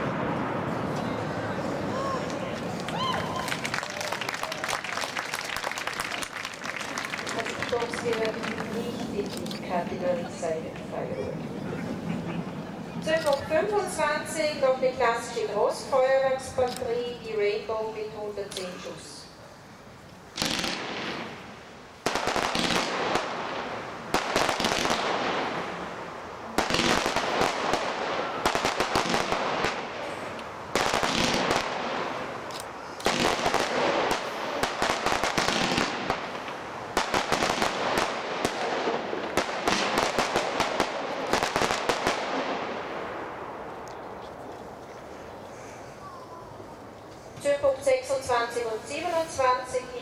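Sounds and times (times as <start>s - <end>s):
firework hiss: 20.3s - 42.6s
rapid sharp firework pops: 20.4s - 21.4s, 22.0s - 23.5s, 24.1s - 25.5s, 26.6s - 30.0s, 30.8s - 32.0s, 33.0s - 42.6s.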